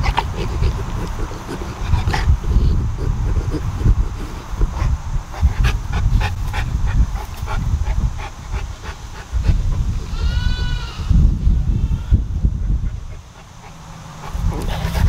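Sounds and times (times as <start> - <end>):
dog panting: 0.0 - 10.2, 12.3 - 15.0
heavy low rumbling: 0.0 - 15.0
goat bleating: 10.1 - 12.2.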